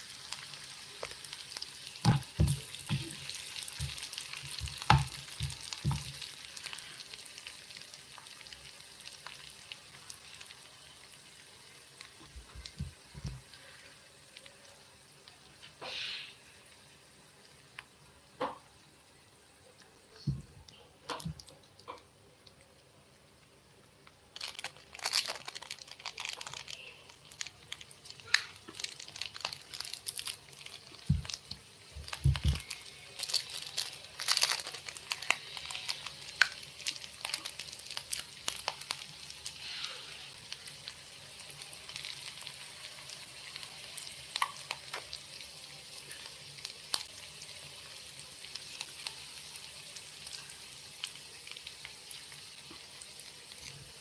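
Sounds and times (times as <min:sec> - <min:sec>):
onions sizzling in oil: 0:00.0 - 0:20.0, 0:24.4 - 0:54.0
oil crackling and spitting: 0:24.3 - 0:40.9.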